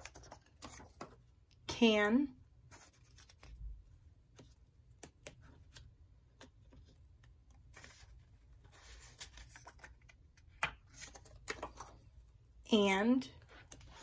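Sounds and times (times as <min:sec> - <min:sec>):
paper cards rustling: 0:00.0 - 0:01.3, 0:02.7 - 0:12.2.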